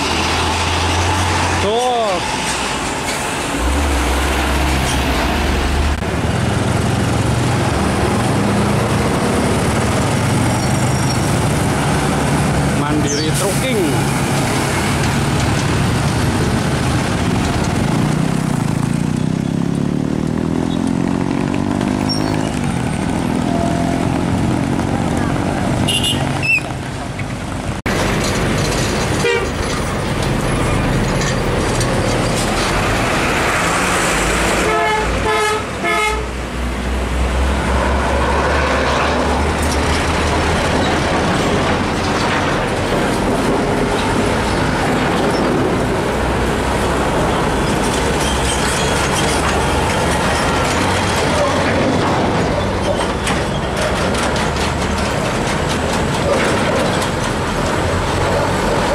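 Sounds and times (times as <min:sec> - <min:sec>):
heavy road traffic: 0:00.0 - 0:58.9
vehicle horn toots: 0:25.8 - 0:26.6, 0:29.2 - 0:29.5, 0:34.6 - 0:36.3.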